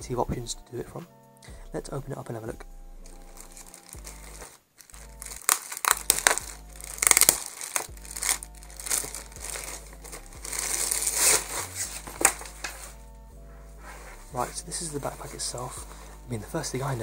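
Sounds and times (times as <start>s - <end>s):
plastic bag crinkling: 3.0s - 13.0s.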